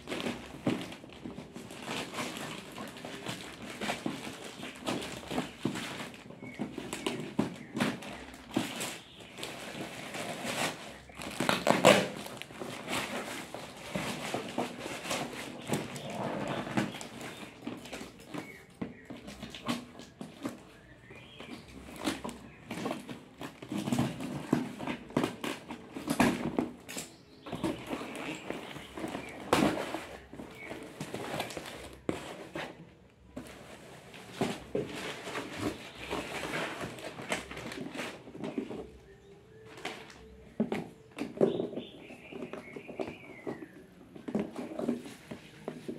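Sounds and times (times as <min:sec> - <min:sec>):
cardboard box being opened: 0:00.0 - 0:26.8
plastic bags crinkling: 0:00.0 - 0:40.6.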